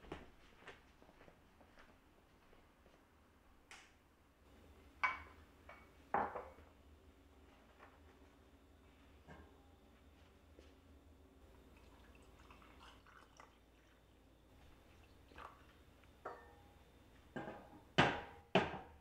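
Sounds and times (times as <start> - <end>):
hot water pouring into mug: 11.5 - 16.0.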